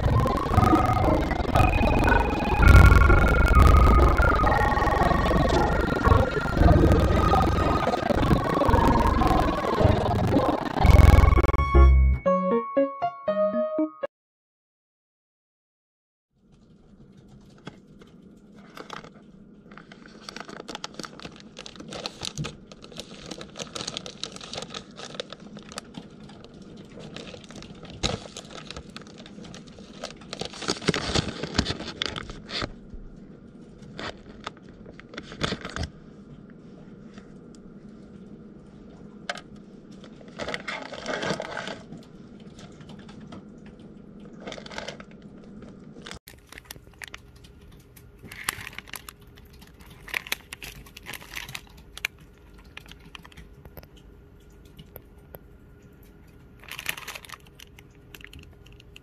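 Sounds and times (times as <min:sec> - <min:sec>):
plastic wrapper crinkling: 0:17.4 - 0:32.8, 0:46.2 - 0:53.9, 0:56.6 - 0:59.0.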